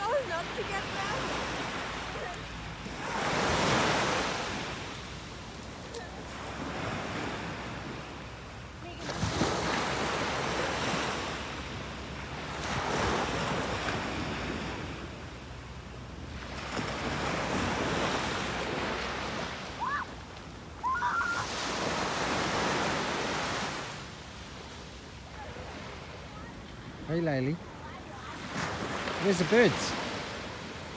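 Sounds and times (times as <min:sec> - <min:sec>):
small waves breaking on shore: 0:00.0 - 0:30.9
short high cries: 0:20.8 - 0:21.6.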